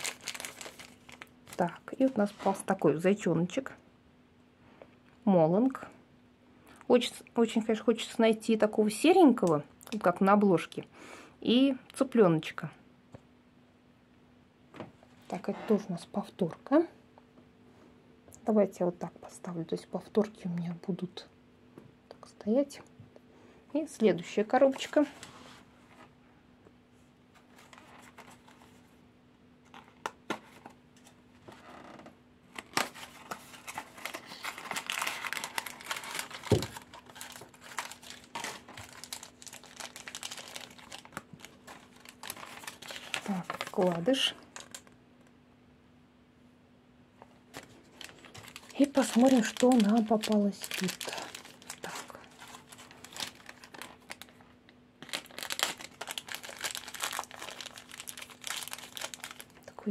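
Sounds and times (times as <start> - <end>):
plastic packet crinkling: 0.0 - 2.2, 27.5 - 28.8, 32.5 - 45.0, 47.5 - 59.9.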